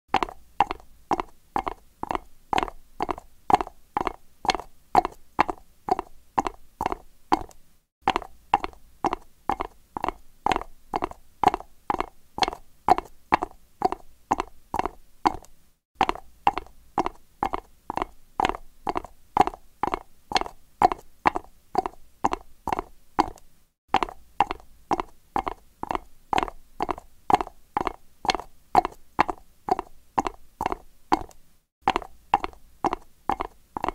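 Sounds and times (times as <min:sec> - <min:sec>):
horse hooves on concrete: 0:00.1 - 0:33.9.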